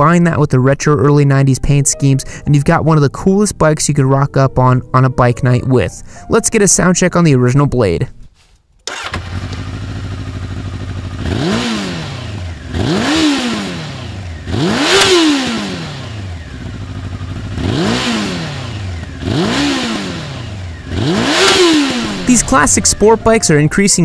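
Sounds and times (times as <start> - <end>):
motorcycle engine idling and revving: 8.9 - 24.0.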